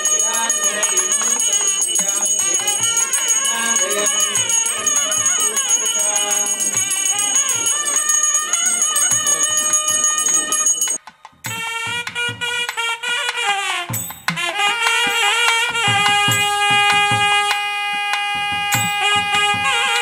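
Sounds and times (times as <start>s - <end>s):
wavering melody: 0.0s - 12.8s
jingling bell rhythm: 0.0s - 17.6s, 18.7s - 20.0s
music with long held notes: 0.0s - 20.0s.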